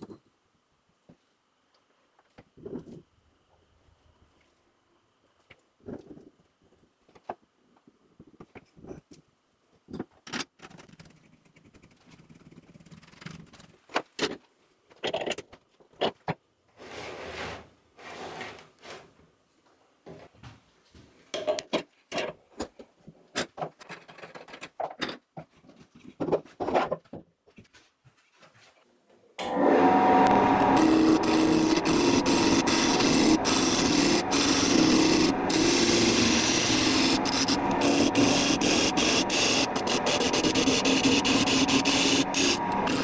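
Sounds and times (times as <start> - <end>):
wood lathe running: 29.4 - 43.0
wooden blocks clicking and scraping: 30.3 - 43.0.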